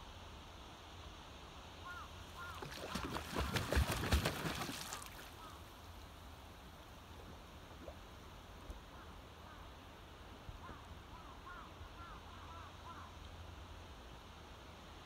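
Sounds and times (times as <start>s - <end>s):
swan wings beating on water: 2.4s - 5.5s.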